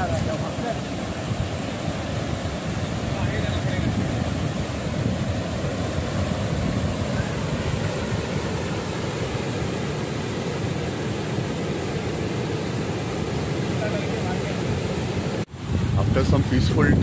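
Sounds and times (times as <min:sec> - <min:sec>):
wind buffeting microphone: 0:00.0 - 0:12.2, 0:15.5 - 0:17.0
surf breaking on beach: 0:00.0 - 0:17.0.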